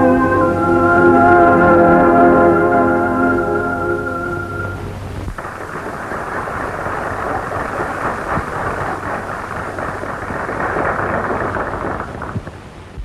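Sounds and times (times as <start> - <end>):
orchestra held chord: 0.0 - 5.2
audience applauding: 5.4 - 12.5.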